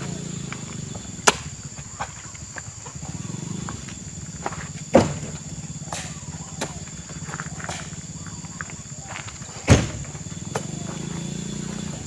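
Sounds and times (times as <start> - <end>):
fruit bunches landing on truck bed: 1.1 - 2.2, 4.4 - 6.8, 9.2 - 10.8.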